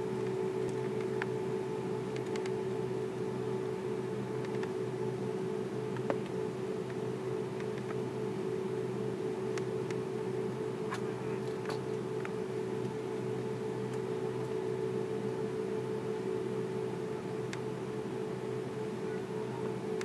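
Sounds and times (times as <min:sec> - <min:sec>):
aircraft cabin hum: 0:03.6 - 0:16.2.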